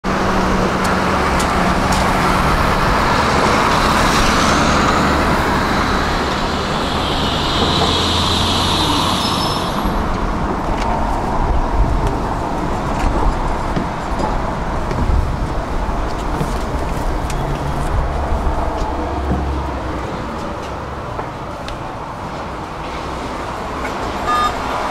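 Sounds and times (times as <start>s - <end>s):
tram hum and rumble: 0.0s - 24.9s
high-pitched wheel squeal: 5.8s - 10.2s.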